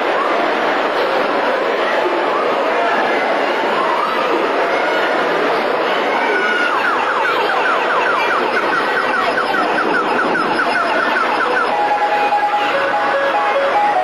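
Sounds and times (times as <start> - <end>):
crowd hubbub in a hall: 0.0 - 14.0
electronic siren-like chirps: 6.6 - 14.0
beeping electronic tune: 6.9 - 14.0.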